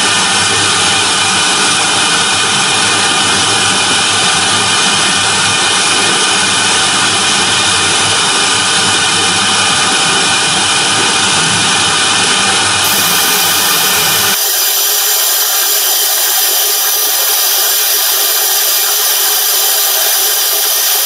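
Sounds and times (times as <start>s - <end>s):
router bit cutting foam: 12.8s - 21.0s.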